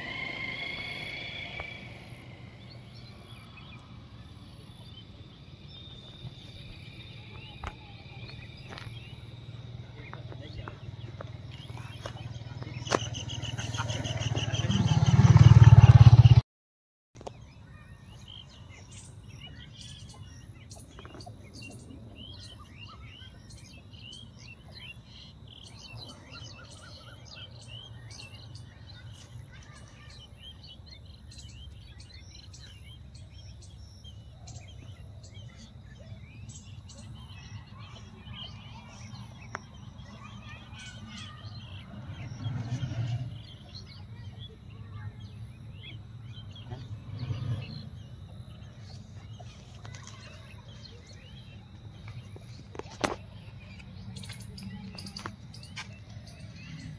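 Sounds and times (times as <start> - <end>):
low rumble: 0.0 - 6.8
small birds chirping: 0.0 - 16.4, 17.2 - 56.9.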